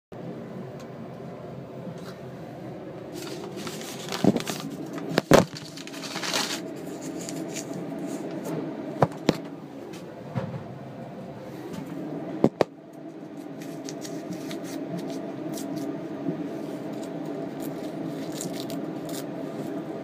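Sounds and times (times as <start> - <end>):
ventilation vent hum and hiss: 0.2 - 20.0.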